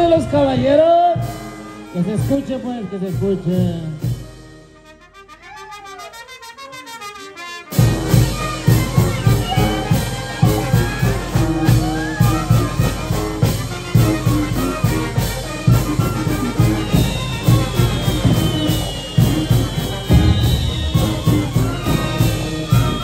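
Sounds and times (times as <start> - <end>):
brass band playing: 0.0 - 23.0
strong bass beat: 8.0 - 23.0.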